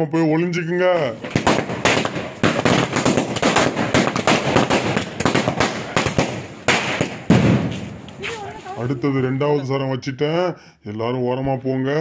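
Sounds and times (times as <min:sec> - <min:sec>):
firecrackers banging: 0:01.0 - 0:09.1.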